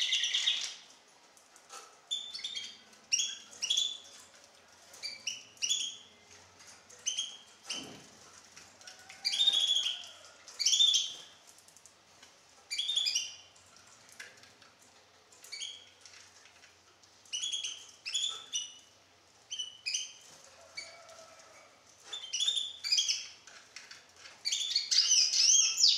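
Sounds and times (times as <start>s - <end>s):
bird singing chirps and trills: 9.3s - 11.2s, 12.7s - 13.4s, 24.4s - 25.9s.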